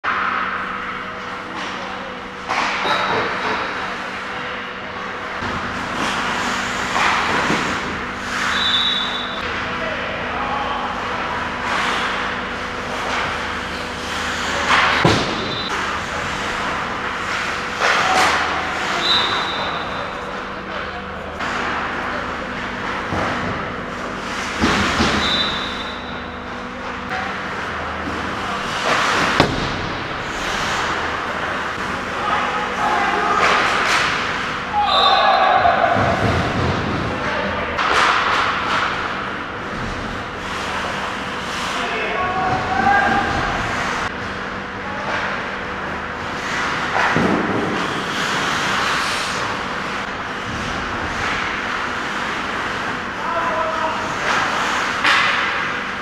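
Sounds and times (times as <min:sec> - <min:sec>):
skates scraping ice: 0:28.2 - 0:31.9, 0:39.8 - 0:41.8, 0:46.2 - 0:49.7
skate blades scraping ice: 0:46.4 - 0:49.6.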